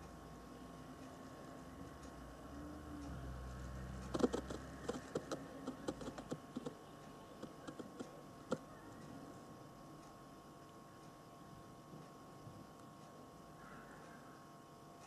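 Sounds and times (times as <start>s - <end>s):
faint steady hum: 0.0s - 15.0s
light clicks and taps: 4.0s - 6.8s, 7.4s - 9.0s.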